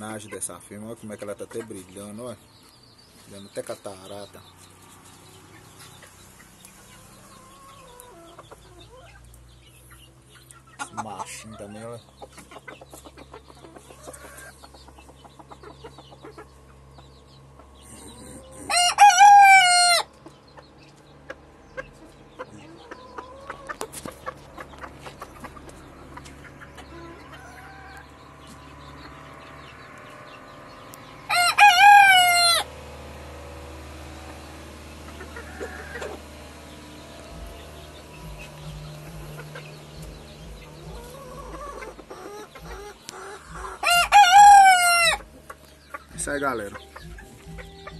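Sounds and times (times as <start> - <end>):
soft clucks: 5.8 - 18.7, 20.2 - 28.6
rooster crowing: 18.2 - 20.1, 31.3 - 32.7, 35.3 - 36.3, 43.6 - 45.3.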